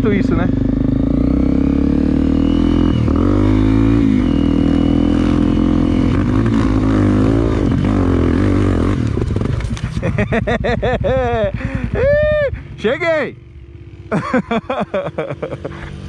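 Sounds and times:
motorcycle engine revving hard: 0.0s - 12.3s.

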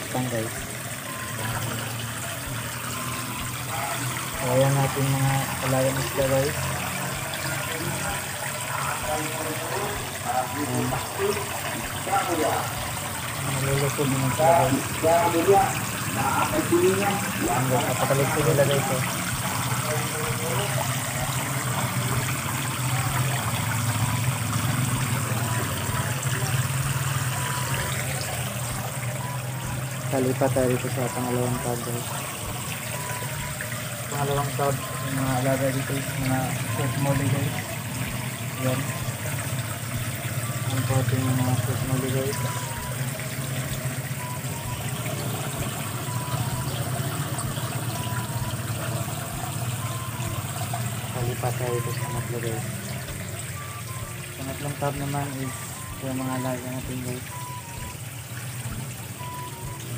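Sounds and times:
water spraying from hose: 0.0s - 59.9s.

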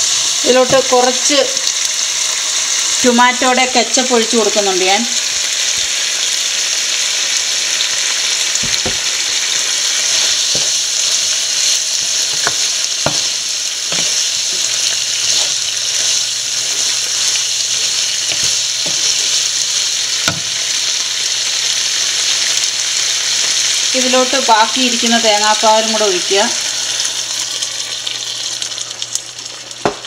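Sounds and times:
curry sizzling in a pan: 0.0s - 30.0s
spoon knocking against pan: 12.3s - 13.3s, 20.2s - 20.5s.

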